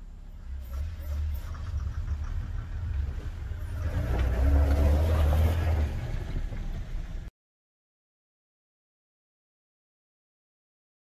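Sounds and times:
tyres in snow: 0.0 - 7.3
vehicle engine rumble: 0.0 - 7.3.

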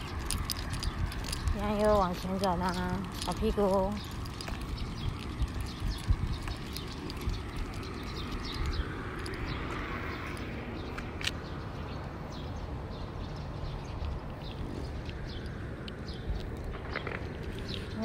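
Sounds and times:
high chirps and ticks: 0.0 - 18.0
wind rumbling on microphone: 0.0 - 18.0.

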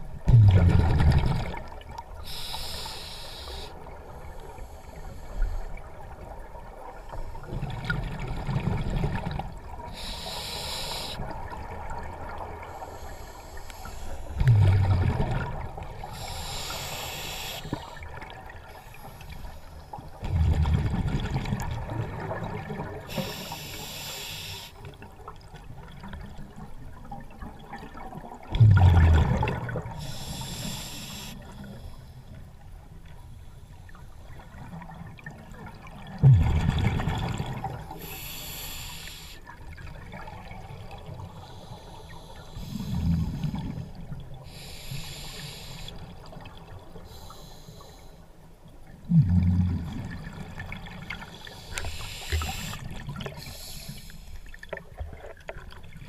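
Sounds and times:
exhaled bubbles rumbling: 0.0 - 2.1, 14.4 - 16.2, 20.2 - 23.1, 27.4 - 30.1, 34.9 - 37.9, 49.0 - 51.2
regulator inhale hiss: 2.2 - 3.8, 4.4 - 5.8, 9.9 - 11.2, 12.7 - 14.4, 16.1 - 18.0, 23.1 - 24.9, 30.0 - 32.3, 37.9 - 39.5, 41.4 - 43.7, 44.4 - 46.2, 47.0 - 48.3, 51.3 - 54.6.

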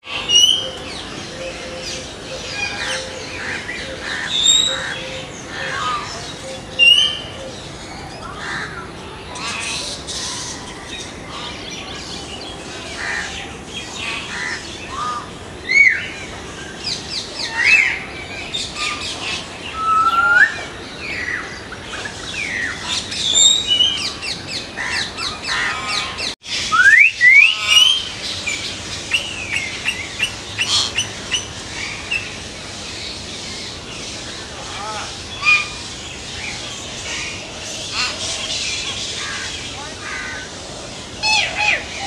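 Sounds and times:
birds whistling and clicking: 26.7 - 27.6.

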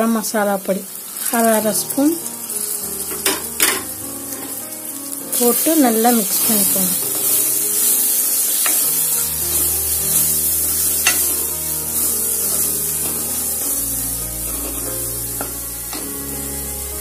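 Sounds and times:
masala sizzling in oil: 0.0 - 17.0
soft background music: 1.2 - 17.0
spatula scraping pan: 5.4 - 16.7.

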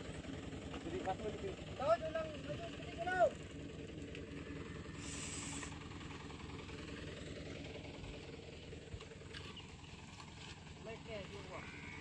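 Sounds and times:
diesel truck engine idling: 0.0 - 12.0
short hiss: 5.0 - 5.7.

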